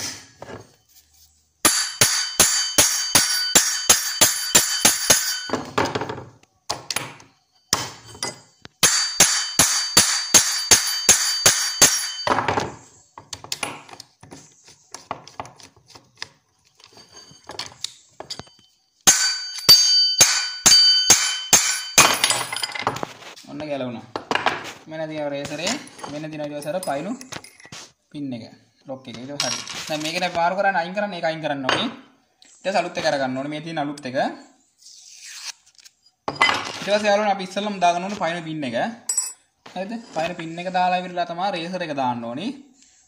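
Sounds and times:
clinks of metal being handled: 0:01.7 - 0:05.8, 0:08.1 - 0:12.8, 0:16.7 - 0:23.1, 0:25.6 - 0:27.8, 0:39.1 - 0:39.5.

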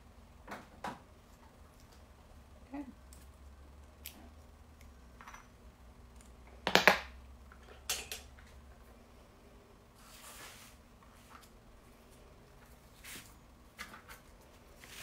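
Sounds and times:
craft tools tapping and clicking: 0:06.2 - 0:08.3.

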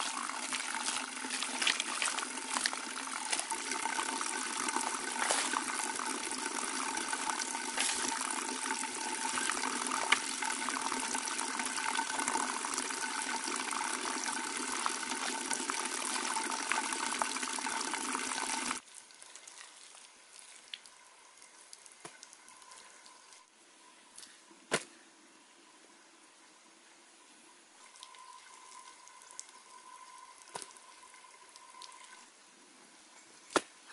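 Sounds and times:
water rushing: 0:00.0 - 0:18.8.

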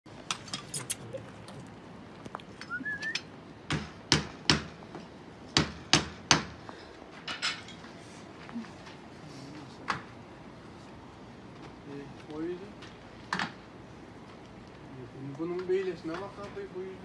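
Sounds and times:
short rising chirp: 0:02.6 - 0:03.3.

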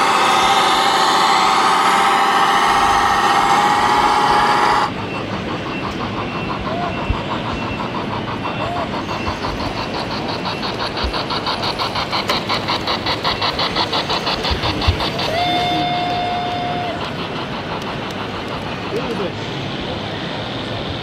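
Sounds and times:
steam locomotive whistle: 0:00.0 - 0:05.0, 0:15.2 - 0:17.1
model train running on track: 0:00.0 - 0:21.0.

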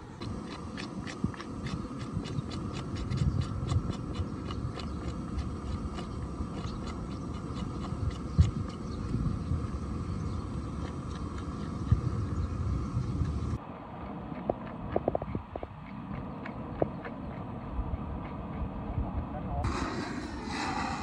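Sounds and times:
wind rumble on microphone: 0:00.0 - 0:21.0
scraping strokes on hide: 0:19.6 - 0:21.0.

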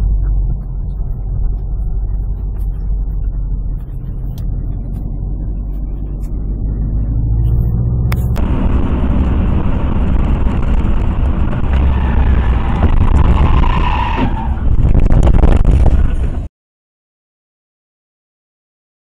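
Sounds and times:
car road and engine noise: 0:00.0 - 0:16.5
tire squeal: 0:11.4 - 0:15.0.

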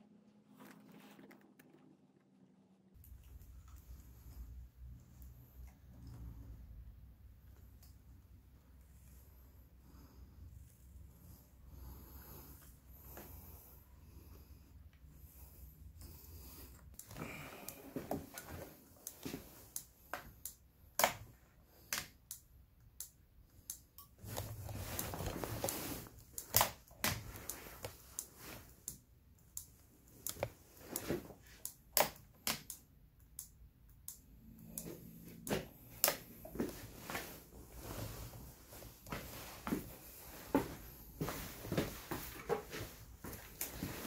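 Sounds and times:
hands clicking plastic parts: 0:16.9 - 0:24.2, 0:25.0 - 0:36.3.

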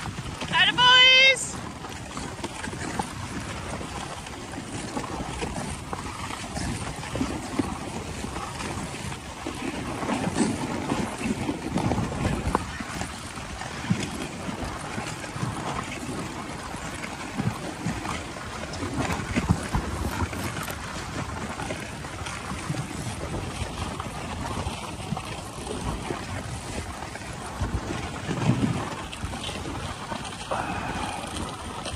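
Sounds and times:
wind on microphone: 0:00.0 - 0:31.9
sled runners hissing over snow: 0:30.4 - 0:31.7.

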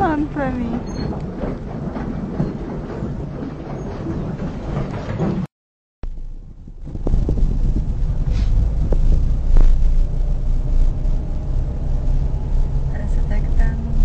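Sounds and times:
car engine and tyres on wet road: 0:06.1 - 0:14.0.

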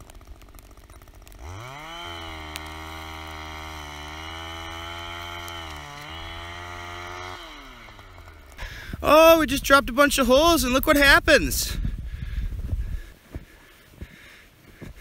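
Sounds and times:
ice auger engine running: 0:00.0 - 0:09.7.

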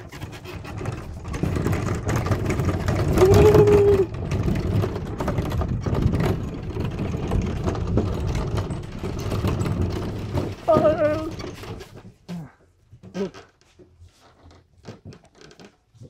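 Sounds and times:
cart wheels rumbling on gravel: 0:00.0 - 0:12.2.

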